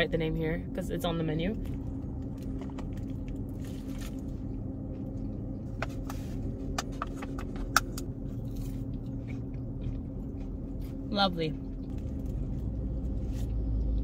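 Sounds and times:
car engine idling: 0.0 - 14.0
person chewing: 7.6 - 14.0.

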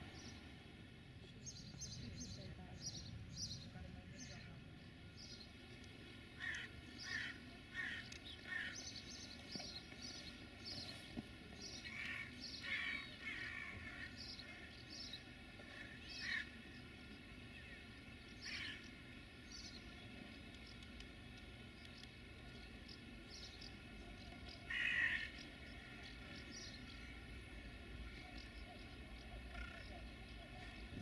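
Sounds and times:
small birds chirping: 0.0 - 0.6, 1.3 - 31.0
crow cawing: 24.7 - 25.3.

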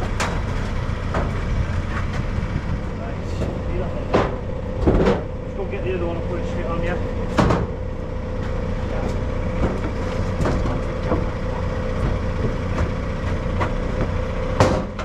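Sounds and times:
diesel engine humming: 0.0 - 15.0
sharp knocks: 3.4 - 5.4, 7.3 - 7.8, 12.0 - 15.0.

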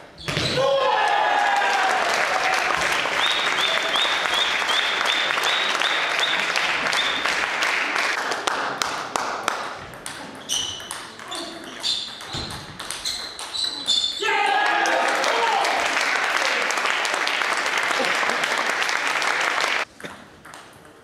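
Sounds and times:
noisy hall background: 0.0 - 21.0
table tennis ball pinging: 9.6 - 14.2.

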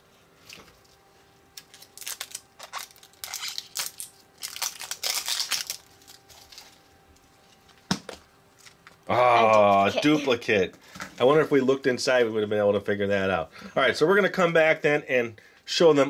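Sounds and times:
plastic capsule crinkling: 1.6 - 6.8.

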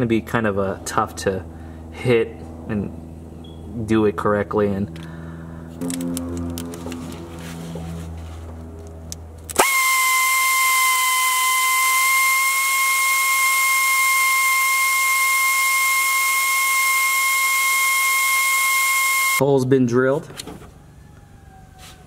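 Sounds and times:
angle drill whining: 9.5 - 19.4.

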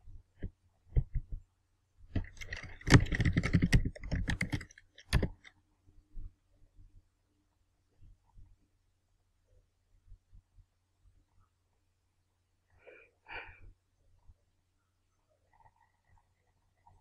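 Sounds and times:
computer keyboard typing: 2.1 - 5.5.

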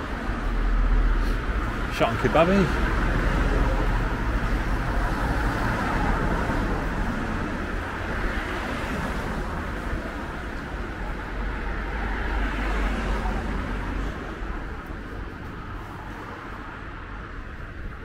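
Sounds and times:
car tyres and engines: 0.0 - 18.0
road traffic passing: 0.0 - 18.0.

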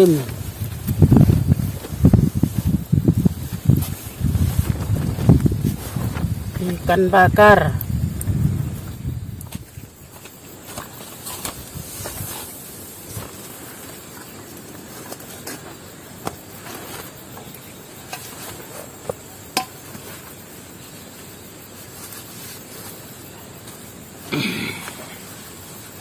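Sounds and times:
wood fire crackling: 0.0 - 18.7.

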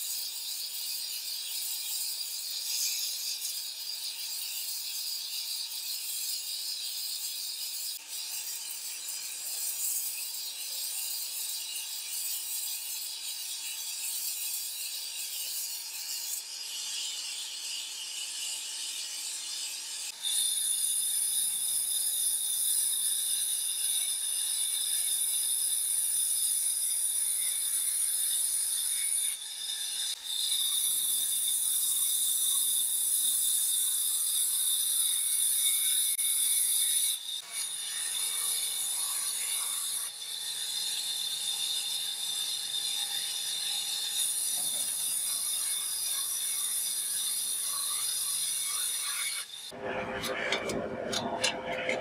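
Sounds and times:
band saw cutting wood: 34.0 - 52.0.

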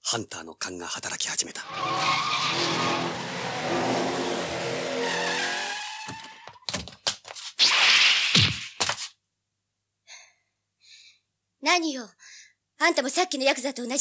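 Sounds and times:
car tyres squealing: 1.6 - 6.6
loud rush of noise: 2.5 - 6.0.

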